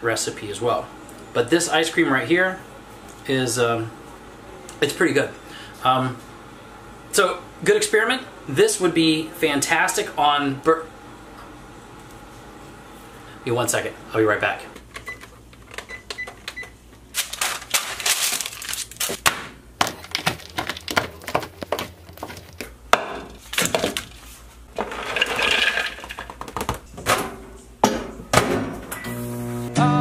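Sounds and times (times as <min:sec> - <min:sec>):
oven keypad beeping: 0:15.0 - 0:16.8
music: 0:29.1 - 0:30.0.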